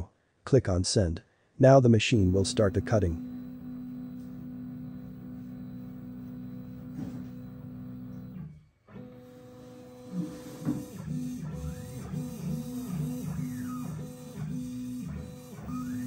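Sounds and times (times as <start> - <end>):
stepper motors whining: 2.2 - 10.0.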